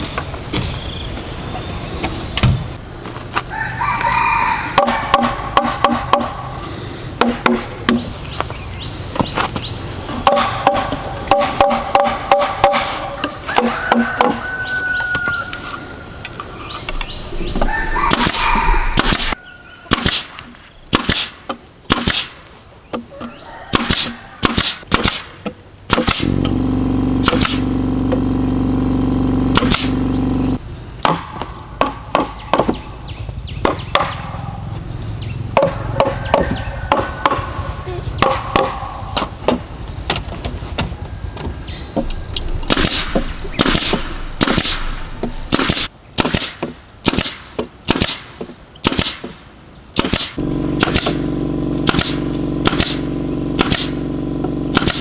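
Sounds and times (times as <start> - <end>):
nail gun shots: 4.8 - 6.4, 10.2 - 13.1, 18.1 - 22.5, 23.7 - 26.6, 27.2 - 27.8, 29.5 - 30.1, 42.7 - 54.1, 54.7 - 55.0
hollow bamboo knocking: 10.2 - 12.9
steady hum: 25.9 - 30.6, 42.1 - 45.9, 50.2 - 55.0.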